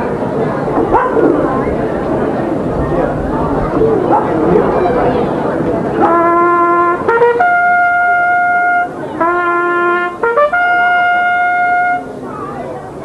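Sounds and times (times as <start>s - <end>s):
trumpet playing bugle call: 6.0s - 12.2s.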